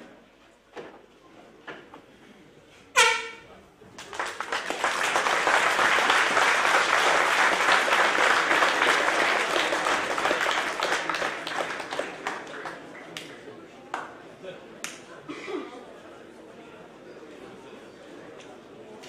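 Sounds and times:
crowd applauding: 0:04.0 - 0:14.1.

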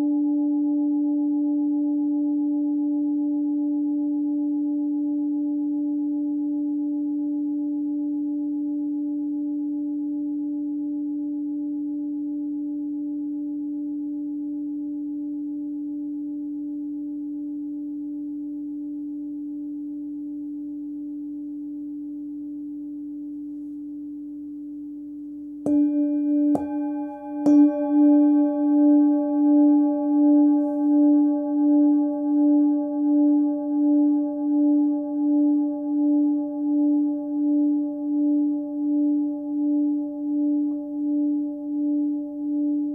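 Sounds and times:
singing bowl being struck: 0:25.6 - 0:42.8
singing bowl ringing: 0:25.6 - 0:42.9.

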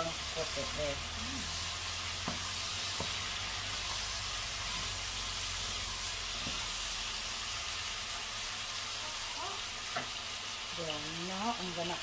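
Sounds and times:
food sizzling in a pot: 0:00.0 - 0:12.0.

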